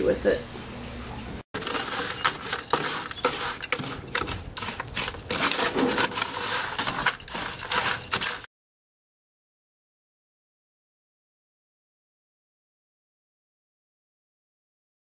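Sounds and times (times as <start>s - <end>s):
crackling and rustling with clicks: 1.6s - 8.5s.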